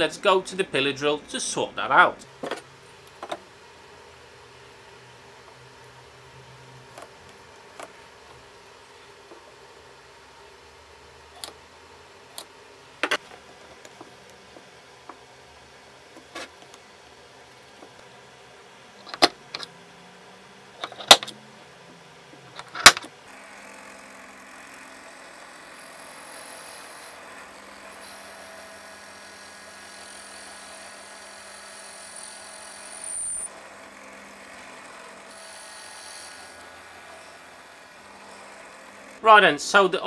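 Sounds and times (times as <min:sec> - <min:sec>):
pillar drill boring wood: 0:23.3 - 0:39.2.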